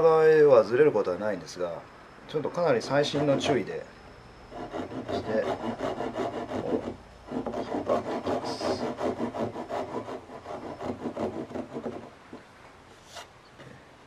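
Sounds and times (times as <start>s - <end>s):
pull saw cutting wood: 4.5s - 12.1s.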